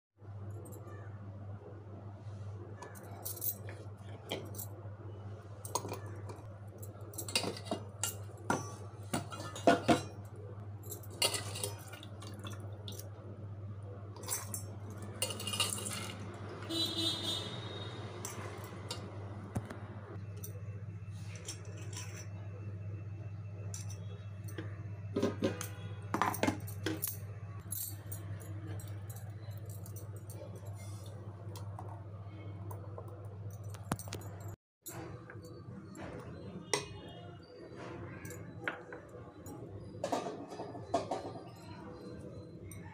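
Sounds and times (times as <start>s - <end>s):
steel kitchenware clinking: 5.6s - 13.2s, 14.2s - 19.2s, 21.3s - 22.4s, 23.6s - 32.0s, 38.2s - 42.9s.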